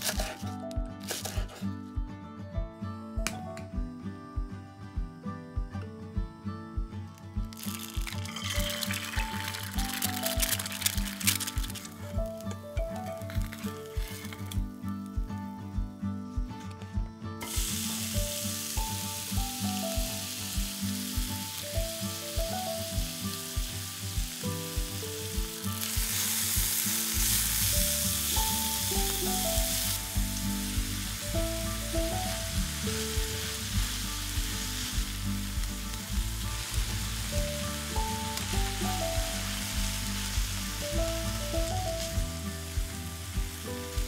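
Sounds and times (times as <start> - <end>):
background music with steady beat: 0.0 - 44.0
meat sizzling in a frying pan: 7.5 - 12.4, 13.1 - 14.6, 17.4 - 44.0.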